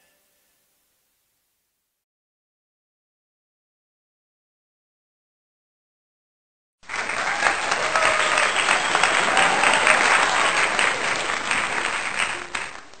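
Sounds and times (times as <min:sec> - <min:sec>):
crowd clapping: 0:06.8 - 0:13.0.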